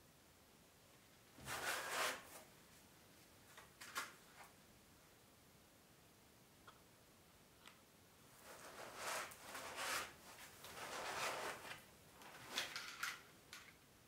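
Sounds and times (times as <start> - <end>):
packaging rustling and scraping: 8.4 - 13.0.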